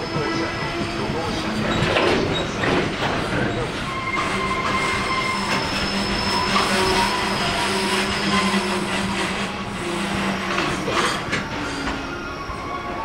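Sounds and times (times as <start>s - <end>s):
high wheel squeal: 0.0s - 13.0s
train wheels rumbling on rails: 0.0s - 13.0s.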